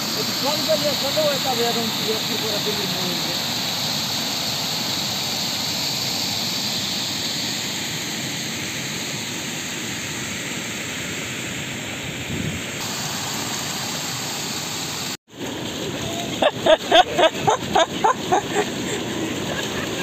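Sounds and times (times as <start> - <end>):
falling rain: 0.0 - 3.6, 12.8 - 20.0
floodwater rushing over road: 0.0 - 5.9, 12.8 - 20.0.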